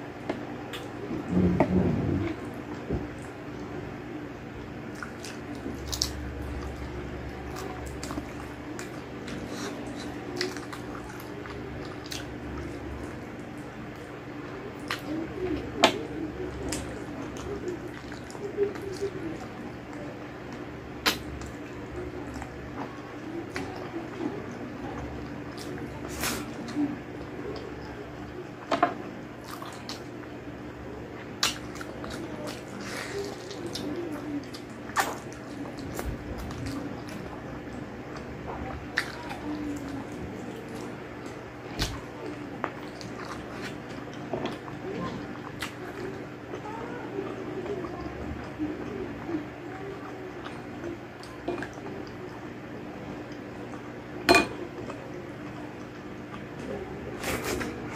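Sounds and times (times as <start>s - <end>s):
steady low hum: 0.0s - 57.9s
wet chewing and lip-smacking: 31.2s - 52.5s.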